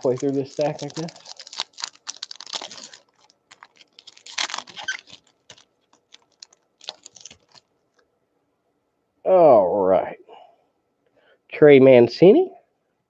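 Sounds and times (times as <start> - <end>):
cards clicking and rustling: 0.0 - 7.6.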